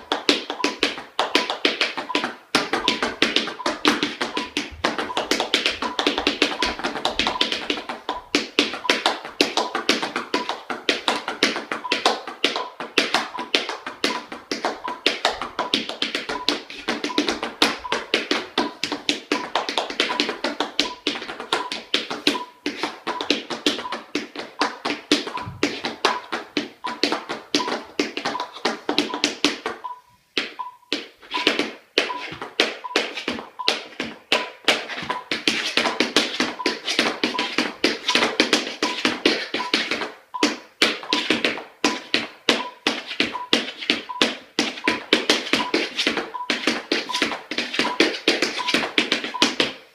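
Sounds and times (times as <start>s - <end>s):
tap shoes on wooden floor: 0.0s - 49.9s
metronome beeping: 0.5s - 7.8s, 12.6s - 15.0s, 25.3s - 27.0s.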